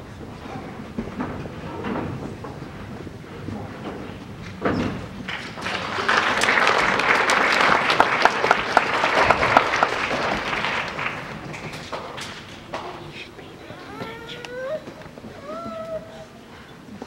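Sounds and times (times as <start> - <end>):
audience applauding: 5.2 - 12.8.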